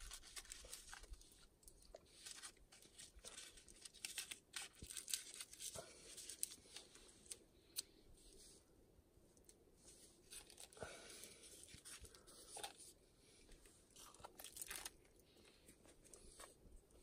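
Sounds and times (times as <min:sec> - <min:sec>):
seaweed sheet crackling: 0:00.0 - 0:06.8, 0:14.2 - 0:15.1.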